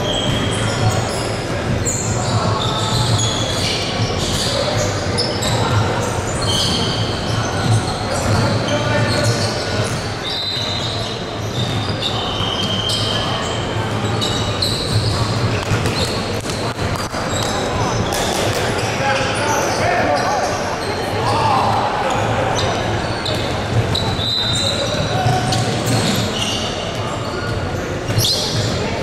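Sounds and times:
sneaker squeaks on floor: 0.0s - 29.0s
voices of players and crowd: 0.0s - 29.0s
basketball bouncing on court: 11.4s - 18.6s, 22.6s - 28.8s.

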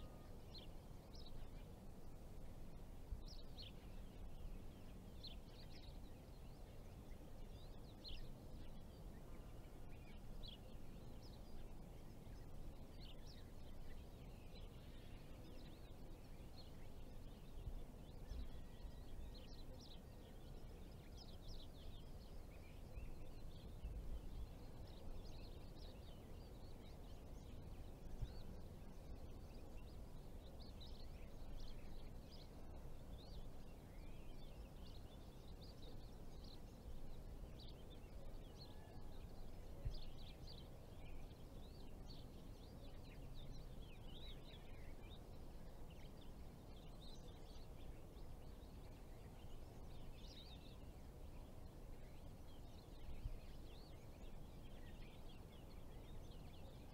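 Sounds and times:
small birds chirping: 0.0s - 56.9s.

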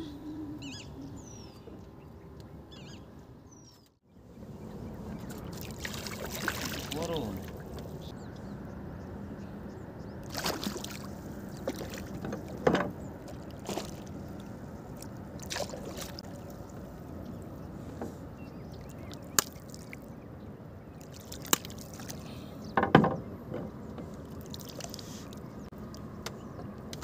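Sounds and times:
water against wooden boat: 4.4s - 8.1s, 10.2s - 27.0s
water splashes: 5.1s - 8.1s, 10.2s - 17.4s, 18.7s - 20.2s, 20.9s - 22.4s, 24.1s - 26.0s.

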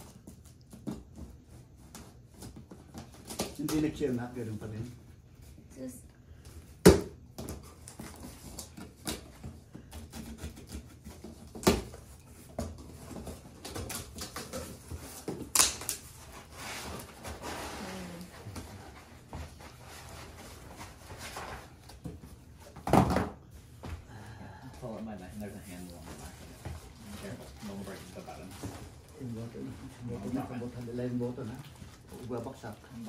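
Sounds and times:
cardboard rustling and scraping: 7.4s - 22.8s, 24.8s - 33.0s.

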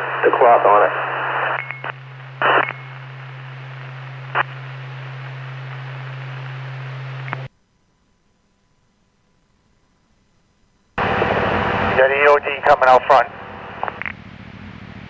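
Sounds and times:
radio crackle: 0.0s - 7.5s, 11.0s - 14.2s
radio static burst: 0.0s - 7.5s, 11.0s - 14.2s
radio static hiss: 0.0s - 7.5s, 11.0s - 14.3s
low hum: 1.0s - 8.9s, 9.8s - 15.0s.

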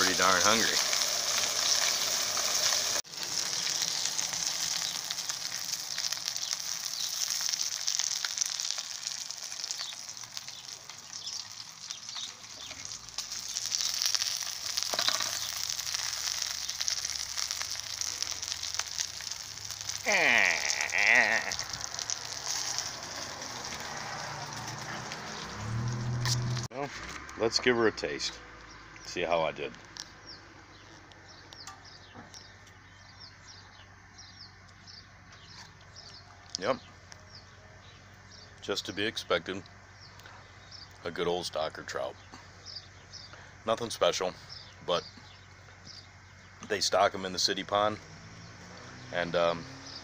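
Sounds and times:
fish sizzling in oil: 0.0s - 26.7s.

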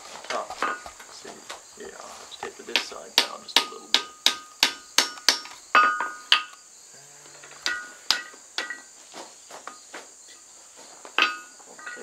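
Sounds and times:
hammer striking steel on anvil: 2.7s - 6.6s, 7.6s - 8.9s, 11.2s - 12.0s.

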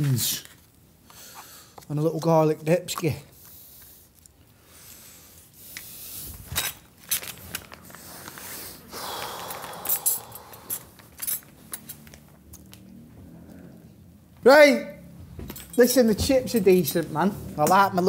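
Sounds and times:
breathing close to microphone: 3.4s - 6.6s, 7.8s - 11.0s.

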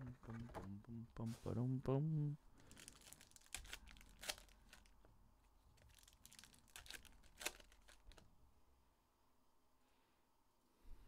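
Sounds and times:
foil card pack tearing: 2.6s - 4.9s, 5.8s - 8.2s
wrapper crinkling: 2.6s - 5.0s, 5.8s - 8.3s.

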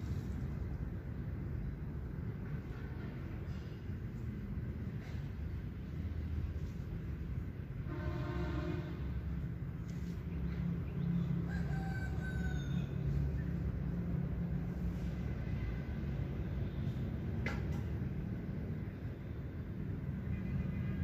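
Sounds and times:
distant rooster crowing: 11.2s - 13.4s.

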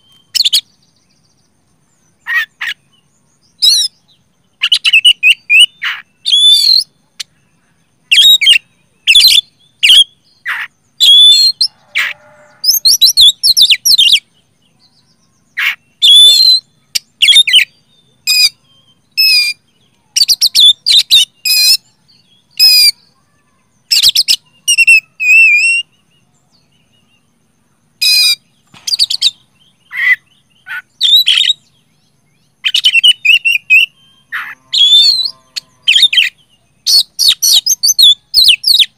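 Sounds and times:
bird whistling song: 0.0s - 1.0s, 2.2s - 7.4s, 8.0s - 23.2s, 23.8s - 27.3s, 28.0s - 38.9s.

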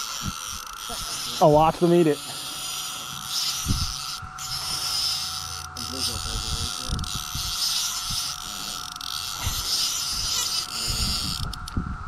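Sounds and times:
cicadas droning: 0.0s - 12.0s.

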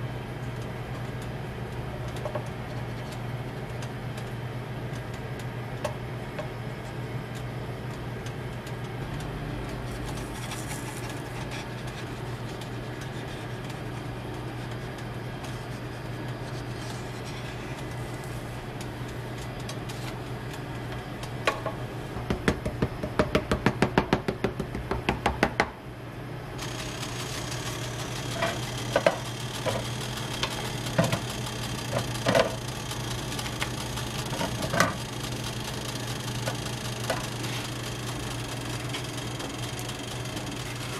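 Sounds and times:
steady low hum: 0.0s - 40.9s
rapid sharp clicks: 26.6s - 40.9s.

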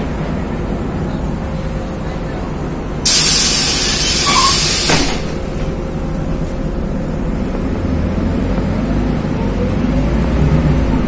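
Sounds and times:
bus engine drone: 0.0s - 11.0s
compressed air hissing: 3.0s - 5.7s.

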